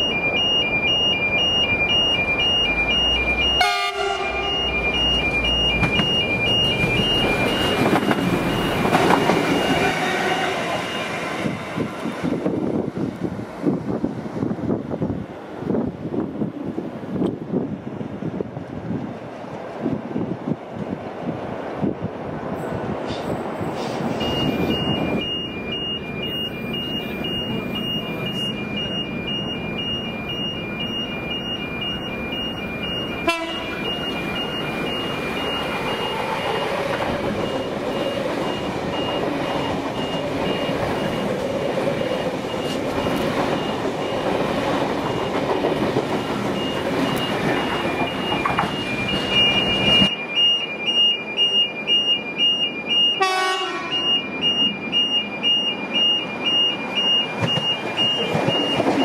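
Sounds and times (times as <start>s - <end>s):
two-tone electronic beep: 0.0s - 11.3s, 24.1s - 59.0s
electric train rumbling past: 0.0s - 59.0s.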